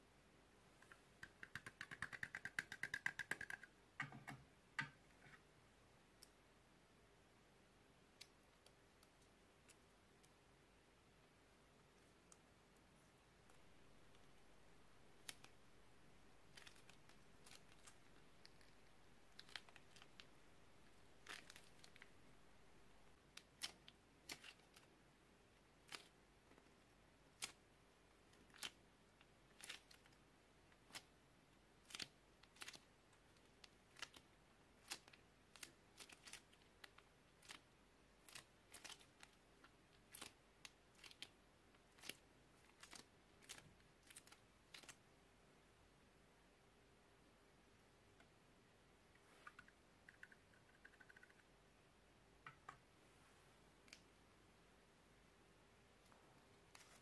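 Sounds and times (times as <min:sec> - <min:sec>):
plastic piping bag crinkling: 0:13.5 - 0:22.2, 0:33.6 - 0:45.0.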